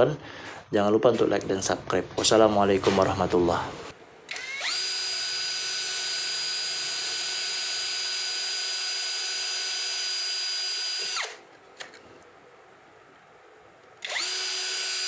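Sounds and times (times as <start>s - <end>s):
cordless drill whining: 4.3s - 11.4s, 14.0s - 15.0s.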